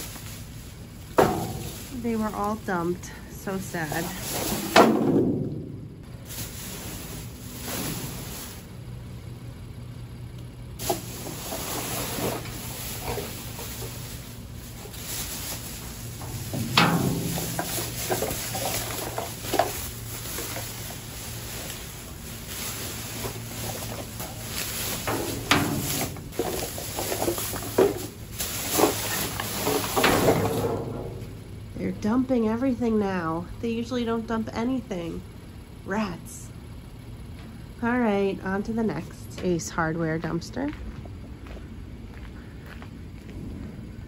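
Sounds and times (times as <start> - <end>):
plastic bags rustling: 0.0 - 9.0, 10.8 - 32.0
knocks and thumps: 1.1 - 1.9, 16.1 - 19.9, 23.6 - 31.6.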